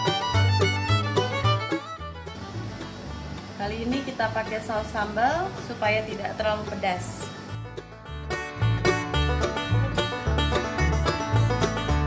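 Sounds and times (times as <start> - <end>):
background music with bass line: 0.0 - 3.6, 6.5 - 12.0.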